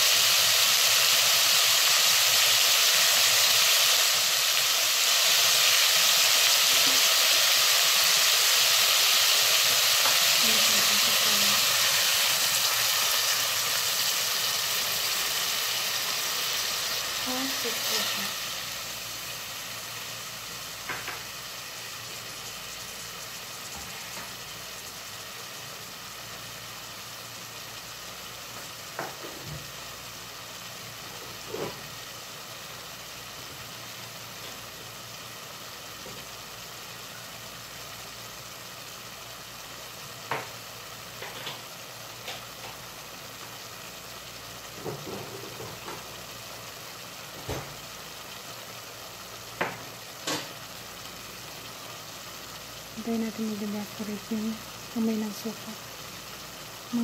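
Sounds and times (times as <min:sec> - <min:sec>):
food sizzling in a pot: 0:00.0 - 0:57.0
sharp cooking pops: 0:00.1 - 0:24.8, 0:28.5 - 0:29.8, 0:31.1 - 0:32.0, 0:40.2 - 0:43.6, 0:44.5 - 0:52.8.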